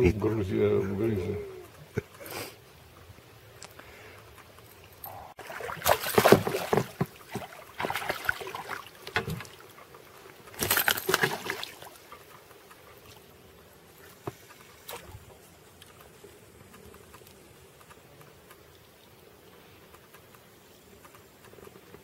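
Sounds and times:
water lapping: 0:00.0 - 0:20.2
fish splashing and thrashing: 0:04.4 - 0:13.4.

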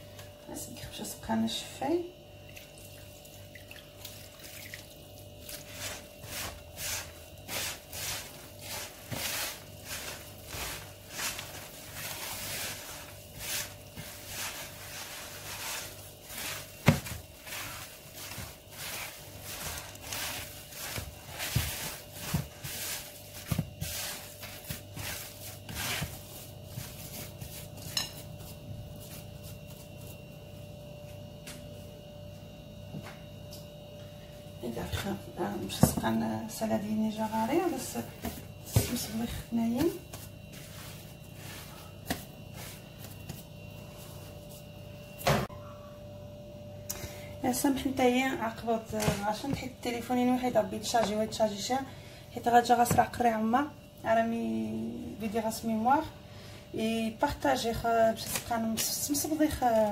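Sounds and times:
hands kneading dough in bowl: 0:04.0 - 0:30.2, 0:35.0 - 0:44.6.

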